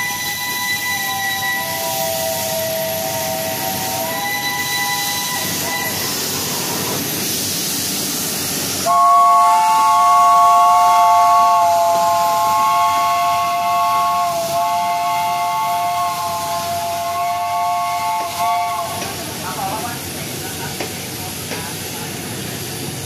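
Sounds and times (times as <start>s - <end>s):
chime steam whistle: 0.0s - 6.9s, 8.8s - 19.1s
steam locomotive hissing: 0.0s - 23.0s.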